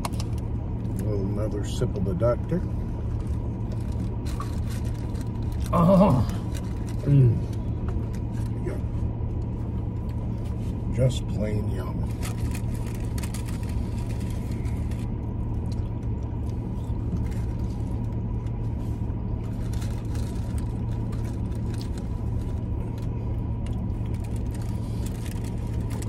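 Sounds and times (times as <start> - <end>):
car idling low rumble: 0.0 - 26.0
paper wrappers rustling: 3.6 - 7.0, 12.1 - 15.1, 19.4 - 23.0, 24.0 - 26.0.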